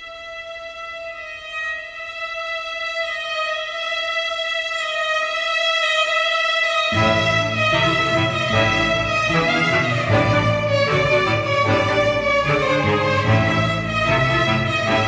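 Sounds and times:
lower strings playing: 6.9 - 15.0
violins holding high note: 6.9 - 15.0.

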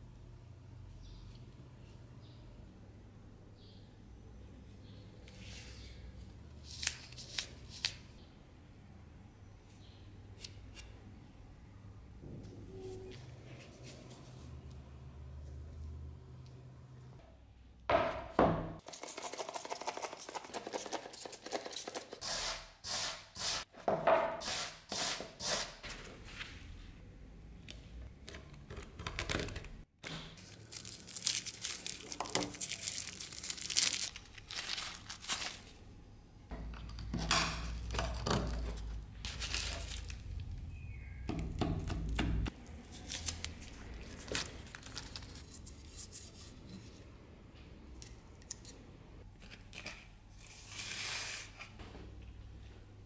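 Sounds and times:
machete knocking on wooden bench: 17.9 - 18.8
scraps crinkling: 30.4 - 35.8, 38.8 - 40.5, 42.6 - 46.6.

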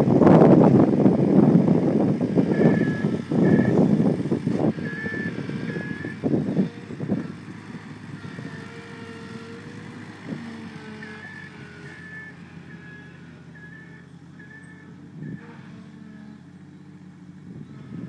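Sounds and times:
loader engine running: 0.0 - 18.0
reversing alarm beeping: 2.5 - 3.8, 4.7 - 6.2, 10.8 - 15.5.

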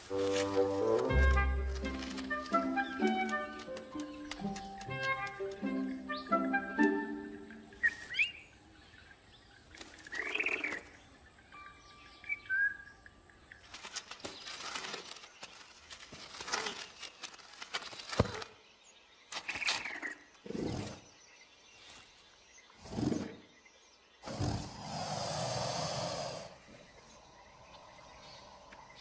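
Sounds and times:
feathery rustling and scuffling: 0.0 - 5.6, 13.6 - 18.6.

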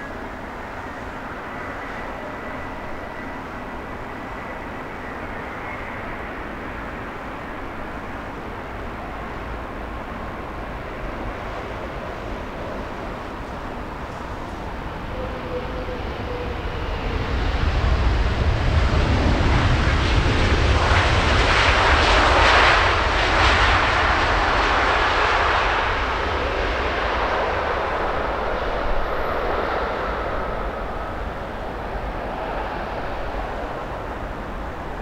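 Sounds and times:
faint thin jet whine: 0.0 - 8.4
jet airliner passing overhead: 0.0 - 35.0.

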